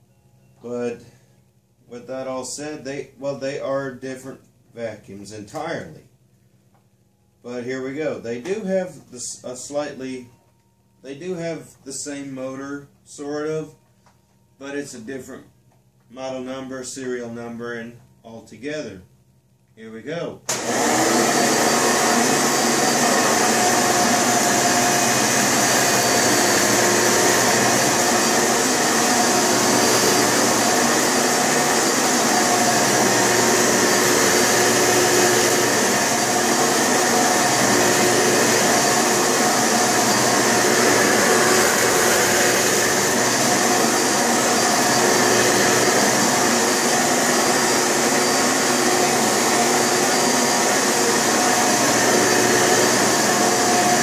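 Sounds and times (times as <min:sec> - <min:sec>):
vacuum cleaner running: 0:20.5 - 0:54.0.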